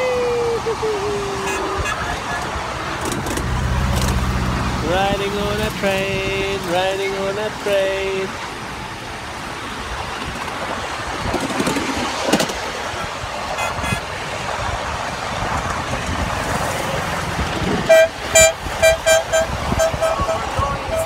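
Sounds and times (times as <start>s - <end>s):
miniature train rumbling: 9.8s - 14.0s
short high train toots: 17.9s - 21.0s.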